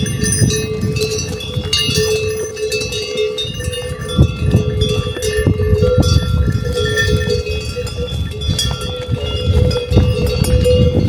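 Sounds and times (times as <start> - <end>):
animal bells clanking: 0.0 - 11.0.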